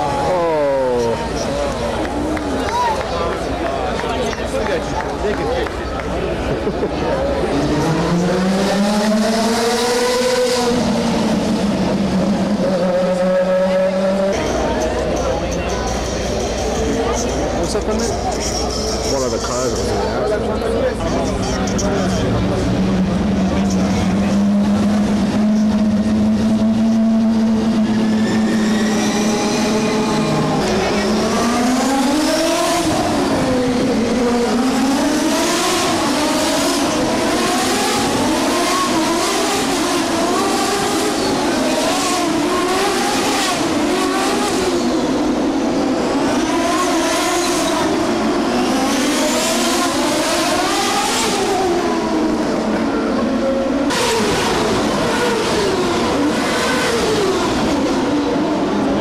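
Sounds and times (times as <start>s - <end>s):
race car engines: 0.0s - 59.0s.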